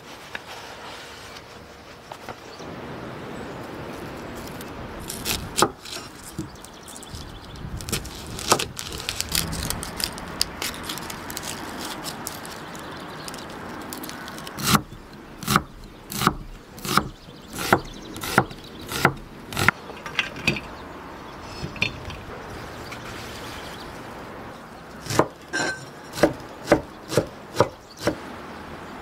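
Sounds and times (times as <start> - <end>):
knife chopping on wooden board: 14.6 - 19.8, 26.1 - 28.2.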